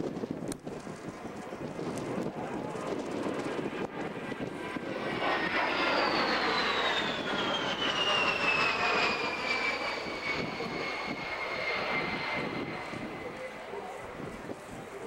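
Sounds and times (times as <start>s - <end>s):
jet engines whining overhead: 0.0s - 15.0s.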